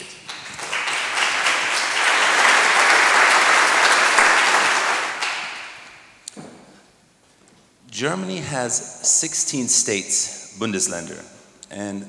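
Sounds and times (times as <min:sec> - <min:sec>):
audience applause: 0:00.0 - 0:05.9.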